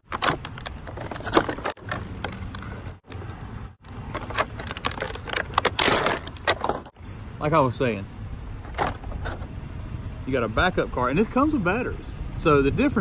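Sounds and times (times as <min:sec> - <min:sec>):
plastic packaging crackling: 0:00.0 - 0:07.0.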